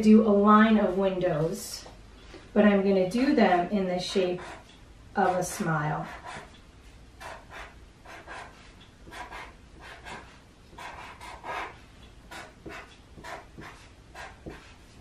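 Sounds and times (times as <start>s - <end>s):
marker squeaking on paper: 4.4s - 6.6s, 7.2s - 15.0s.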